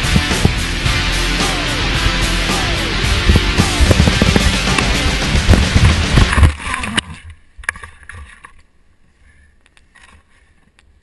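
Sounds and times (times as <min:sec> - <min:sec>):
bike rattling over dirt trail: 0:03.3 - 0:08.5
rustling and snapping branches: 0:03.8 - 0:08.7.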